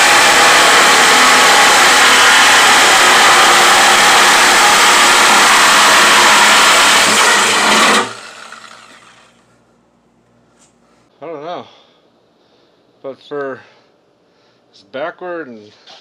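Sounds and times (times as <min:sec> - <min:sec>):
reciprocating saw cutting plastic: 0:00.0 - 0:09.4.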